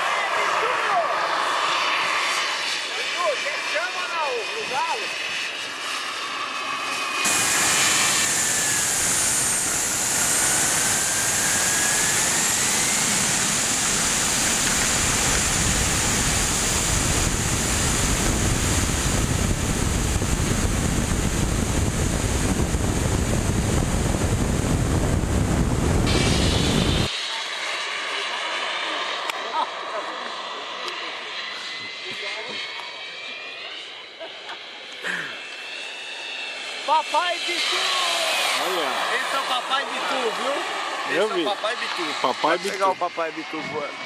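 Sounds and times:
loud rushing noise: 0.0s - 31.9s, 35.8s - 42.6s
model jet engine whine: 0.0s - 44.0s
low rumble: 7.3s - 27.2s.

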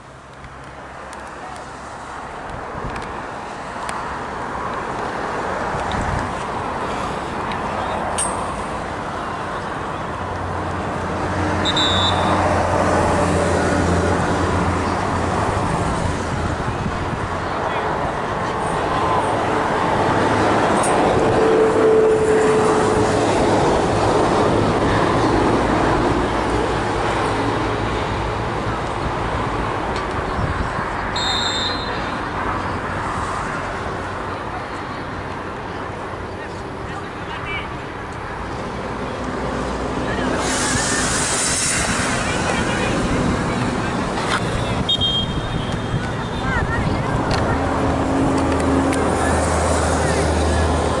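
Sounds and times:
passing vehicle rumble: 0.0s - 31.4s, 32.0s - 51.0s
road traffic noise: 0.0s - 51.0s
short high whistle blast: 11.6s - 12.4s, 31.2s - 32.0s, 44.9s - 45.8s
vehicle engine hum: 32.2s - 51.0s.

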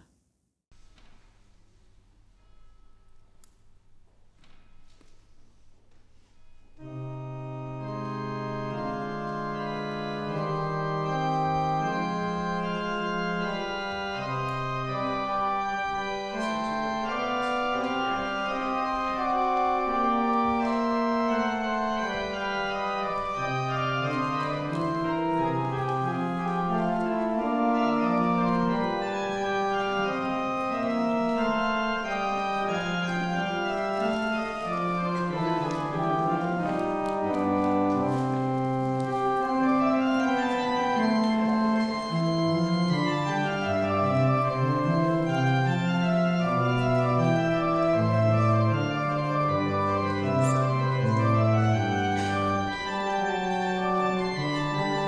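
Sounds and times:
organ playing slow chords: 6.8s - 55.0s.

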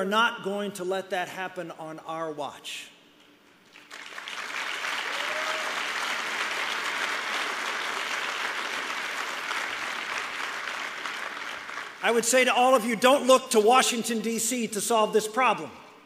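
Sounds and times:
audience applauding: 3.7s - 12.2s.

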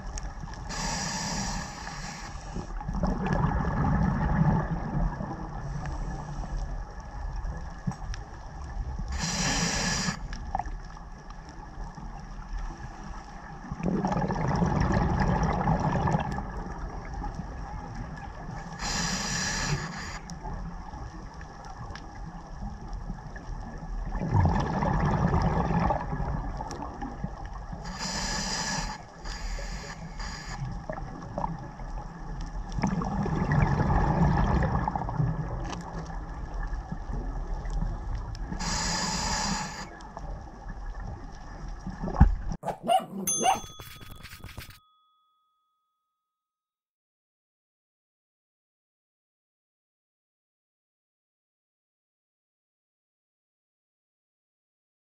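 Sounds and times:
regulator hissing inhale: 0.7s - 2.8s, 9.1s - 10.4s, 18.7s - 20.3s, 27.9s - 30.7s, 38.6s - 40.0s
exhaled bubbles rushing: 2.9s - 5.6s, 13.6s - 16.9s, 24.0s - 27.2s, 32.8s - 35.6s.

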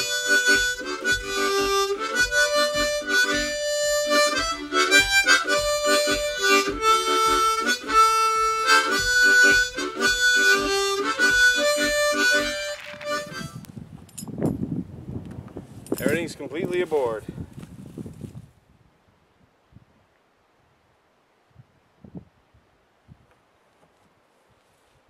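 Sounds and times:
harmonica playing chords: 0.0s - 13.7s.

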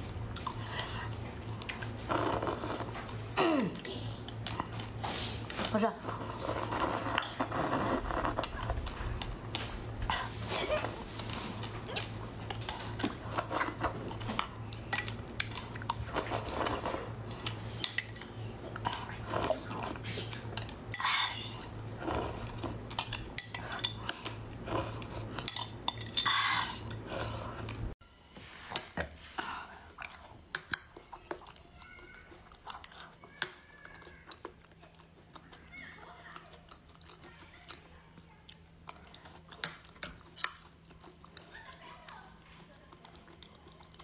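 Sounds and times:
metal spoon scraping glass bowl: 6.1s - 8.4s.

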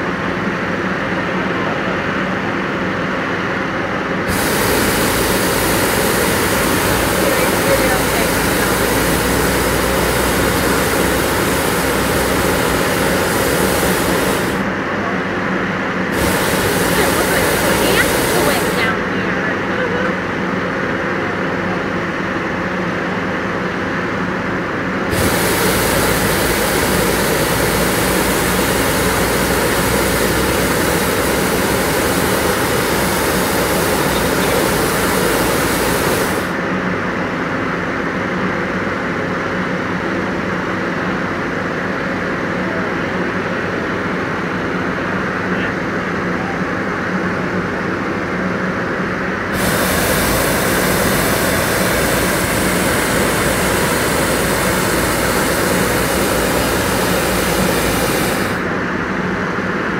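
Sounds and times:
steady engine drone: 0.0s - 59.9s
propane burner blast: 4.0s - 14.9s, 15.7s - 20.4s, 25.0s - 37.1s, 49.4s - 59.0s.

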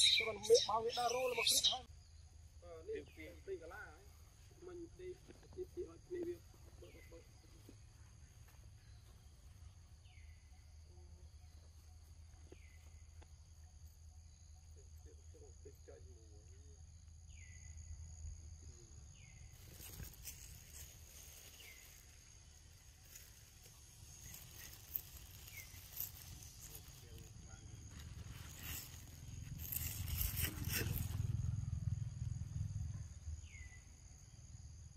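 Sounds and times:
high insect drone: 0.0s - 34.9s
rustle: 19.3s - 33.8s.

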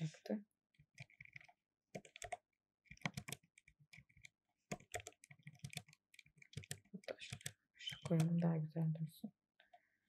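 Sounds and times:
typing on computer keyboard: 0.8s - 8.4s.

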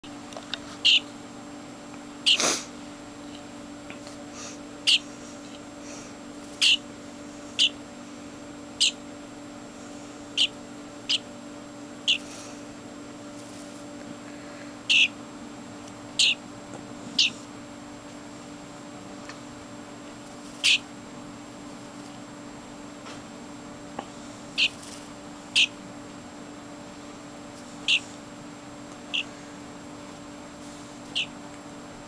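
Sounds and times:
bird chick harsh calls: 0.8s - 1.1s, 2.2s - 2.6s, 4.8s - 5.1s, 6.6s - 6.9s, 7.5s - 7.8s, 8.8s - 9.0s, 10.3s - 11.3s, 12.0s - 12.6s, 14.8s - 15.2s, 16.1s - 16.4s, 17.2s - 17.4s, 20.6s - 20.9s, 24.5s - 24.8s, 25.5s - 25.8s, 27.8s - 28.2s, 29.1s - 29.5s, 31.1s - 31.4s.

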